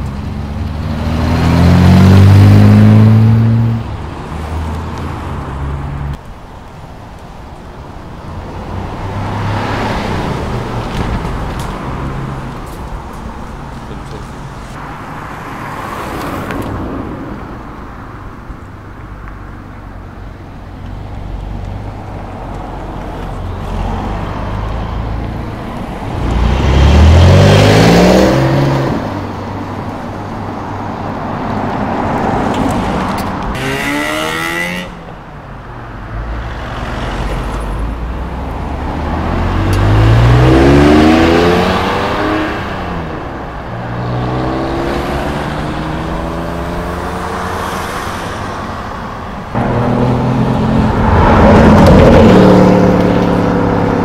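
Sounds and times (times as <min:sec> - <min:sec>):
sports car engines revving: 0:00.0 - 0:06.2, 0:20.9 - 0:35.2, 0:36.0 - 0:54.0.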